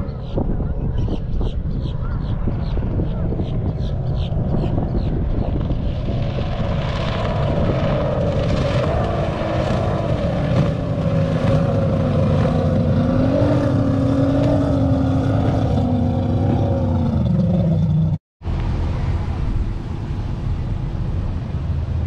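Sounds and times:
outboard boat engine at speed: 0.0s - 22.0s.

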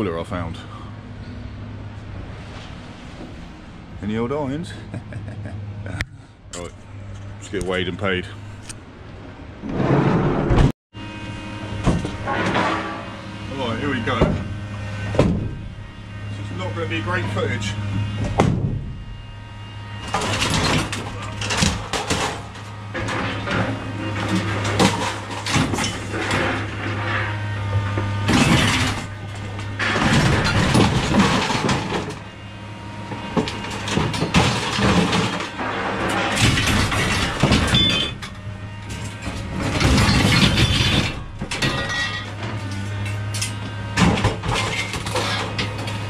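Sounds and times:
low engine hum: 0.0s - 25.0s
scrap iron clattering: 11.9s - 14.5s, 20.0s - 32.3s, 33.3s - 46.0s.

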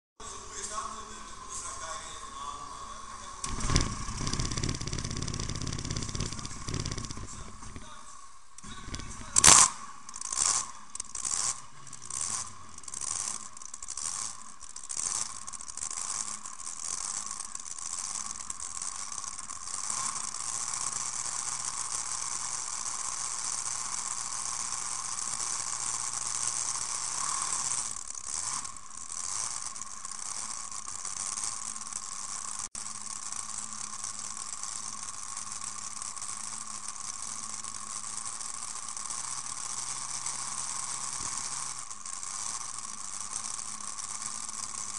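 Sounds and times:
tractor engine idling: 2.6s - 17.9s
steady rattle: 3.4s - 44.9s.

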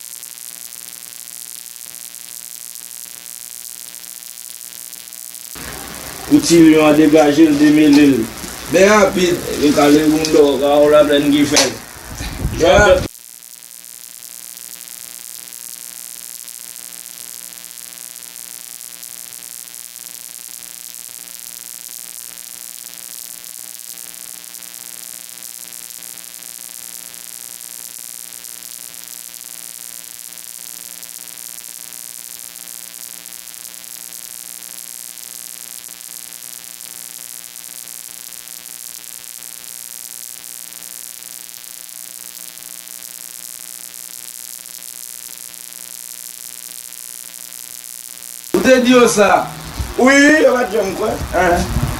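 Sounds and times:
electrical hum: 5.6s - 13.1s, 48.6s - 51.9s
high hiss: 5.6s - 13.1s, 48.6s - 51.9s.

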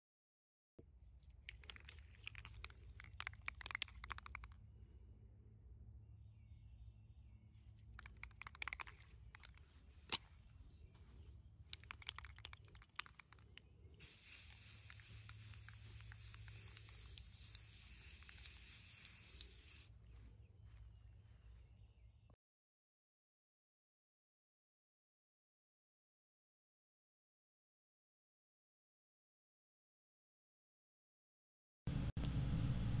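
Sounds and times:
short clicks and rattles: 1.2s - 4.6s, 7.8s - 10.4s, 11.6s - 19.9s
aerosol spray can hissing: 1.5s - 4.5s, 8.0s - 10.2s, 11.7s - 19.9s.

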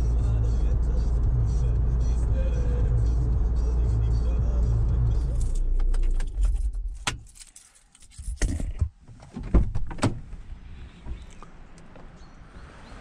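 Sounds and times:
low steady rumble: 0.0s - 7.1s
keys jangling and clicking: 5.2s - 8.8s.

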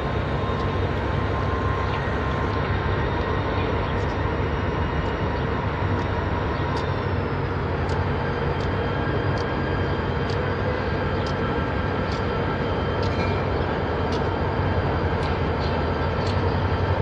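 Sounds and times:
locomotive engine drone: 0.0s - 17.0s
locomotive bell ringing: 13.0s - 15.0s.

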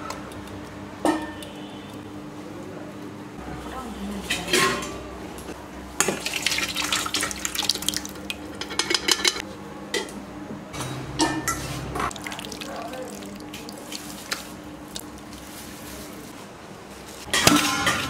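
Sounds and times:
steel bowls and pots clinking: 4.2s - 5.0s, 6.0s - 9.4s, 11.2s - 16.0s, 17.2s - 18.0s
thick liquid pouring and splashing: 6.1s - 8.5s, 12.1s - 15.6s.

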